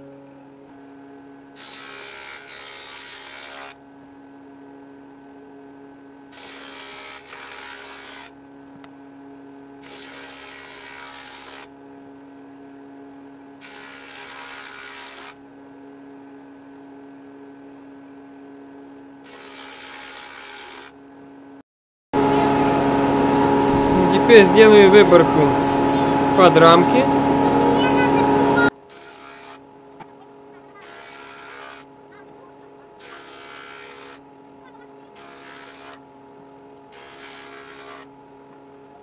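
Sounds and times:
woodworking machine humming: 0:00.0 - 0:21.6, 0:22.2 - 0:39.0
cutter hissing through wood: 0:01.6 - 0:03.8, 0:06.3 - 0:08.3, 0:09.8 - 0:11.7, 0:13.6 - 0:15.4, 0:19.2 - 0:20.9, 0:28.8 - 0:29.6, 0:30.8 - 0:31.9, 0:33.0 - 0:34.2, 0:35.2 - 0:36.0, 0:36.9 - 0:38.1.

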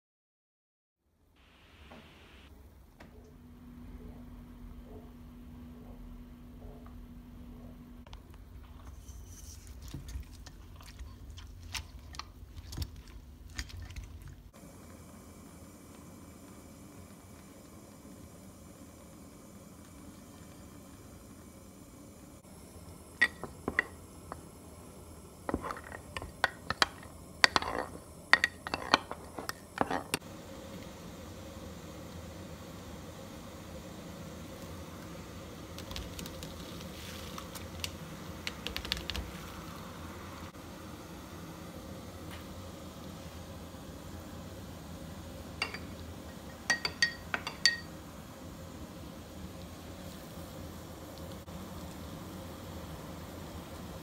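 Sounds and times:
low steady hum: 0:01.1 - 0:54.0
kitchenware clinking: 0:23.2 - 0:24.0, 0:25.5 - 0:30.2, 0:45.6 - 0:47.9
spoon clinking against glass: 0:45.6 - 0:45.9, 0:46.6 - 0:47.9.

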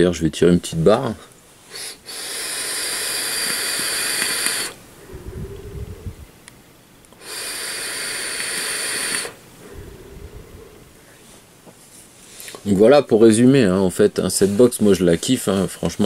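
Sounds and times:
vape coil hissing: 0:01.7 - 0:04.8, 0:07.1 - 0:09.4.

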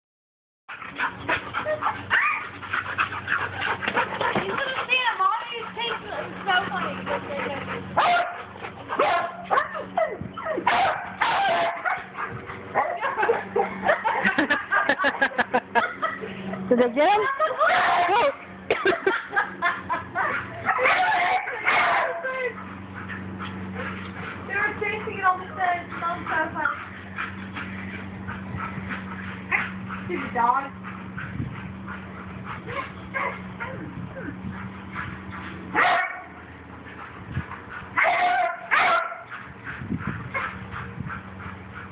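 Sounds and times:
dogs barking and yipping: 0:00.7 - 0:41.9
dog barking: 0:08.0 - 0:08.4, 0:09.0 - 0:09.8, 0:10.4 - 0:12.1, 0:20.2 - 0:23.1, 0:32.7 - 0:33.8, 0:35.0 - 0:36.4, 0:38.0 - 0:39.4.

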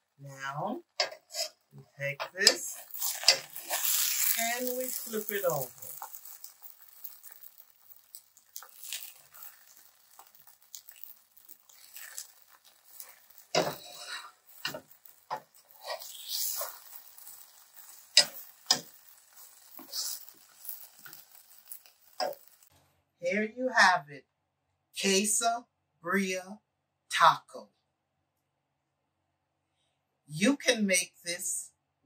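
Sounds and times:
taco sizzling in a pan: 0:00.9 - 0:22.7
utensil scraping a pan: 0:01.0 - 0:22.7.

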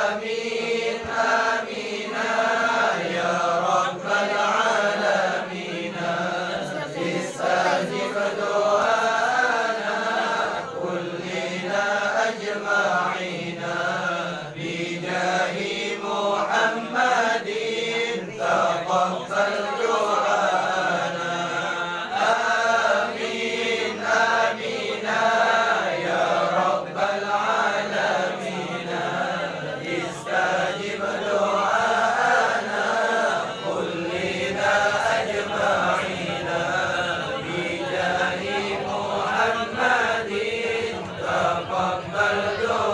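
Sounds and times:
men chanting prayers: 0:00.0 - 0:42.9.

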